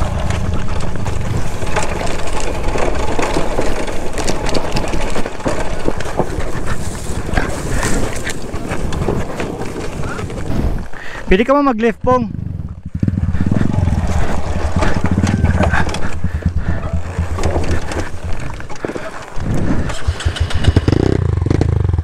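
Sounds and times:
bike knocking and rattling: 0:00.0 - 0:22.0
dirt bike engine: 0:00.0 - 0:22.0
wind buffeting microphone: 0:12.0 - 0:21.5.

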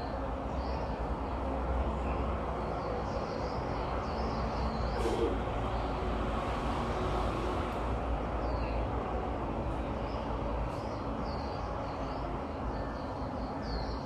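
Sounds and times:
distant traffic rumble: 0:00.0 - 0:14.0
bird chirping: 0:10.1 - 0:14.0.

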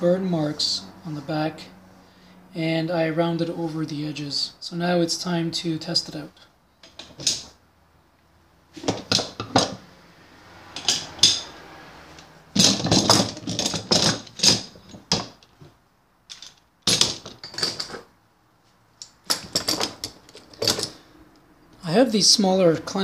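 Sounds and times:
metal clamps clinking and clattering: 0:06.8 - 0:07.6, 0:08.8 - 0:09.8, 0:10.8 - 0:11.6, 0:12.2 - 0:15.5, 0:16.3 - 0:18.1, 0:19.0 - 0:21.0.

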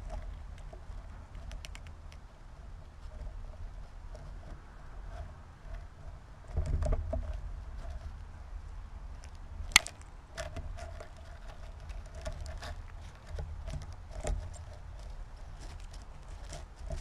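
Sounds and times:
low steady rumble: 0:00.0 - 0:17.0
clicks and taps of seeds: 0:09.2 - 0:10.5.

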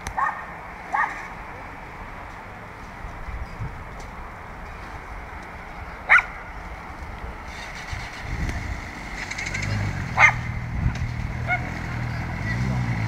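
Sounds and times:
low vehicle engine rumble: 0:00.0 - 0:13.0
steady outdoor hum: 0:00.0 - 0:13.0
dog barking: 0:00.2 - 0:01.3, 0:06.1 - 0:06.4, 0:10.2 - 0:10.5, 0:11.4 - 0:11.8.

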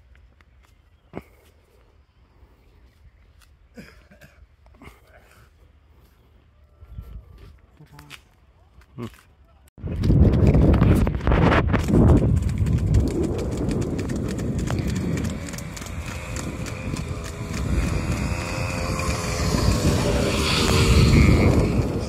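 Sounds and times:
vehicle engine rumbling: 0:10.0 - 0:22.0.

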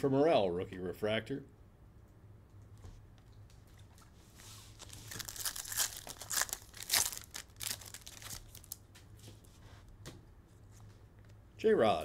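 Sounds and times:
foil wrapper crinkling: 0:04.4 - 0:08.9.

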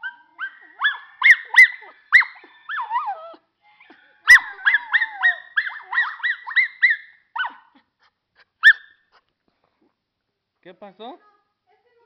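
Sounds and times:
dog yelping howls: 0:00.0 - 0:07.7.

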